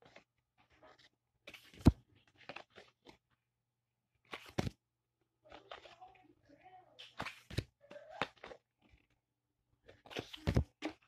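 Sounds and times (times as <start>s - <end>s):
cards clicking and rustling: 0.0s - 3.3s, 4.2s - 4.8s, 5.5s - 6.2s, 7.0s - 9.2s, 9.8s - 11.0s.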